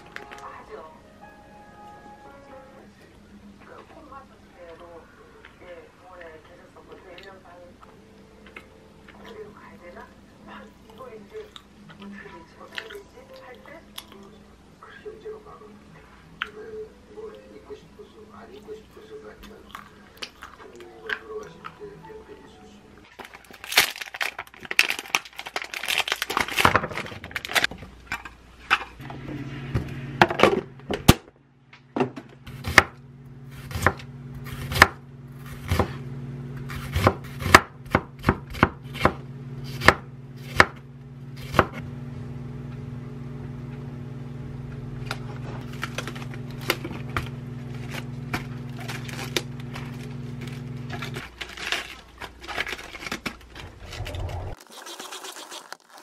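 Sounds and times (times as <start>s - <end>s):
steady low hum: 27.9s - 54.6s
knife chopping on wooden board: 33.6s - 36.0s, 36.7s - 40.8s, 41.4s - 41.8s.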